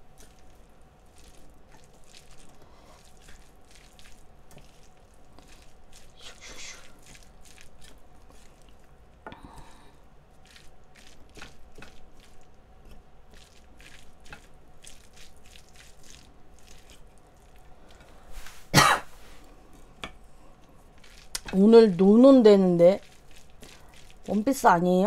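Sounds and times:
person clearing throat: 18.8s - 19.1s.

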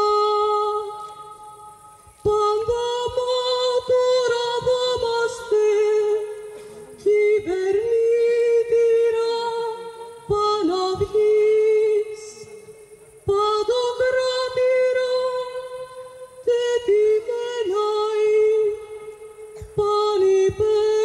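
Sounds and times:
woman singing long notes: 0.0s - 21.0s.

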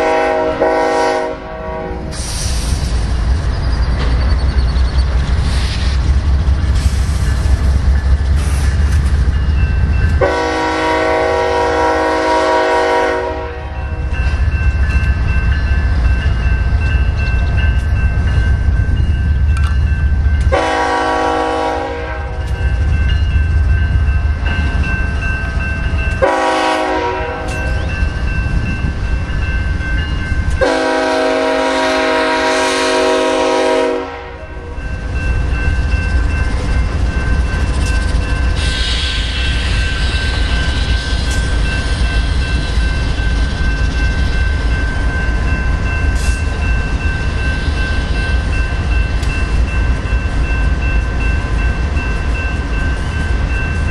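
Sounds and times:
locomotive air horn blasts: 0.0s - 2.3s, 10.2s - 13.8s, 20.5s - 22.4s, 26.2s - 27.6s, 30.6s - 34.7s.

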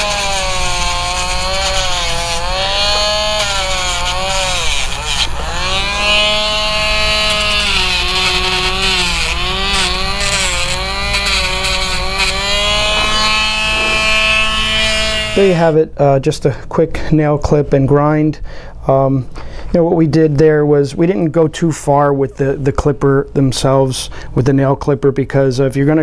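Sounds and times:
nail grinder whining: 0.0s - 15.6s.

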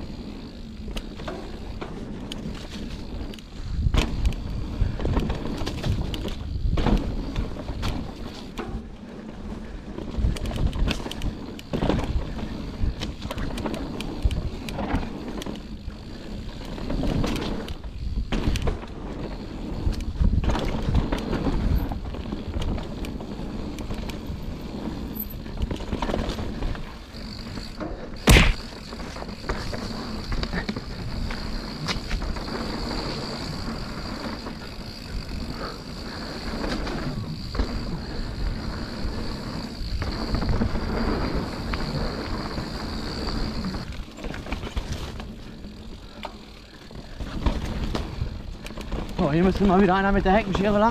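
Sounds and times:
bike clattering and rattling: 0.0s - 50.9s
tyres on dirt: 0.0s - 50.9s
hard knock of bike landing: 28.2s - 28.7s.

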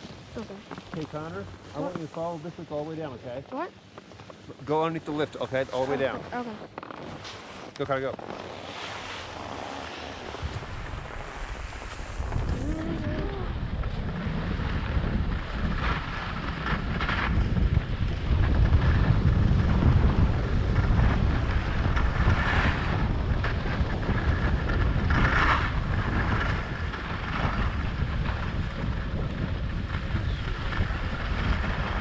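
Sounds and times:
ski scrapes: 4.2s - 13.5s
skis hissing over snow: 5.0s - 6.3s, 7.1s - 13.5s
wind rushing over microphone: 7.8s - 32.0s.

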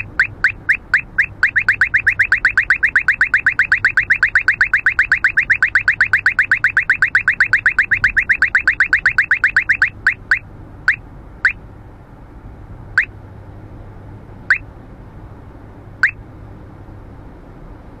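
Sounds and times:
radar detector rising chirps: 0.0s - 11.6s
road noise inside car: 0.0s - 18.0s.

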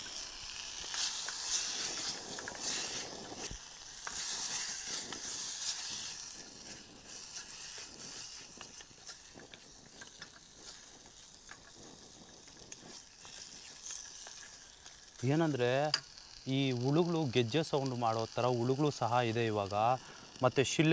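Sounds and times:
food sizzling in a pot: 0.0s - 20.9s.

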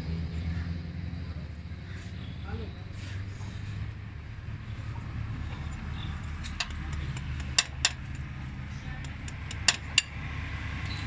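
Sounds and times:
tools clinking on metal: 6.4s - 8.2s, 9.0s - 10.2s.

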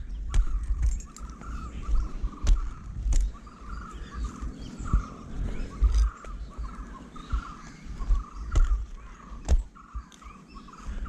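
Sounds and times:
climbing spikes knocking on bark: 0.0s - 1.5s, 2.4s - 3.5s, 8.1s - 10.2s
birds chirping: 0.0s - 11.0s.

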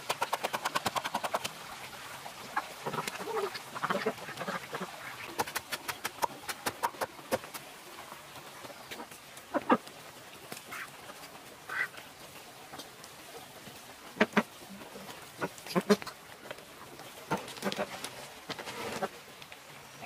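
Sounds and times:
ducks quacking: 2.5s - 5.4s, 8.9s - 9.9s, 10.7s - 12.0s, 14.1s - 14.6s, 15.2s - 16.2s, 17.2s - 18.1s.

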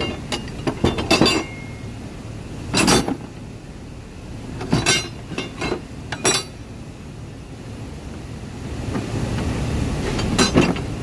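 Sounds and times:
metal tools clinking in drawer: 0.0s - 1.8s, 4.7s - 6.5s
low steady rumble: 0.0s - 11.0s.

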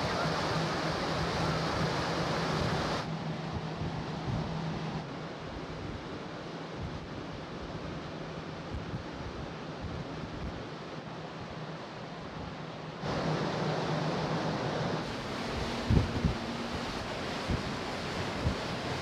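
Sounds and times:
sea washing: 0.0s - 3.1s, 13.0s - 19.0s
wind on microphone: 0.0s - 5.0s, 14.9s - 19.0s
low ship hum: 0.0s - 19.0s.

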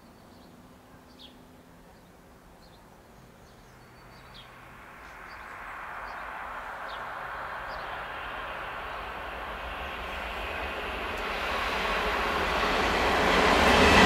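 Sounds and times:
electric train rushing past: 3.9s - 14.0s.

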